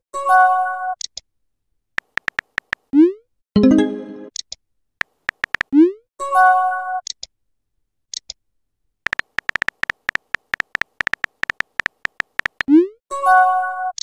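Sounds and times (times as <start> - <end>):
keyboard tap clicks: 2.0 - 2.9, 5.0 - 5.7, 9.1 - 12.7.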